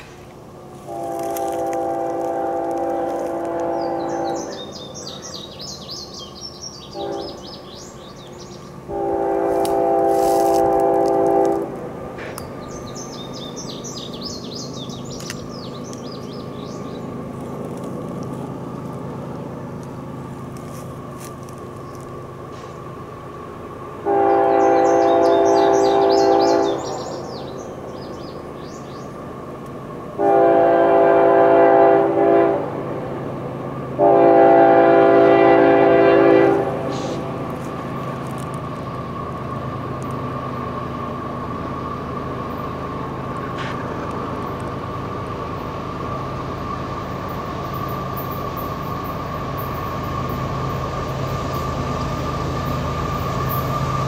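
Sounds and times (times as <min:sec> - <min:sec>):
train rumble: 0:00.0 - 0:54.0
locomotive air horn: 0:00.8 - 0:04.8, 0:06.9 - 0:07.5, 0:08.9 - 0:11.8, 0:24.0 - 0:27.1, 0:30.2 - 0:32.9, 0:34.0 - 0:37.3.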